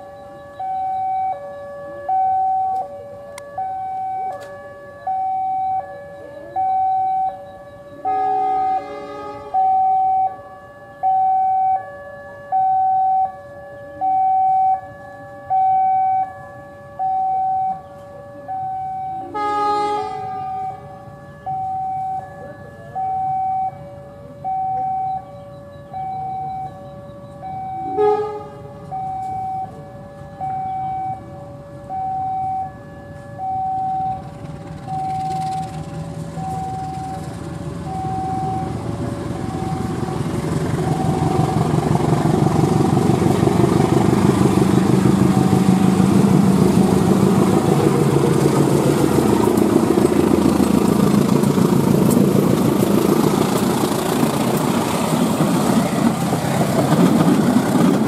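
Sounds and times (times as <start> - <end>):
two-note warning tone: 0.0 - 42.8
diesel locomotive engines: 0.0 - 58.0
train cars rolling: 33.1 - 58.0.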